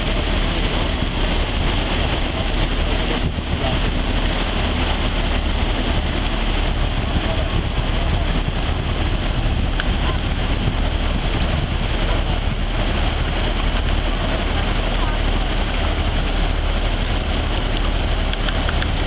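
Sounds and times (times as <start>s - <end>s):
propellers churning water: 0.0s - 19.0s
ship diesel engines humming: 0.0s - 19.0s.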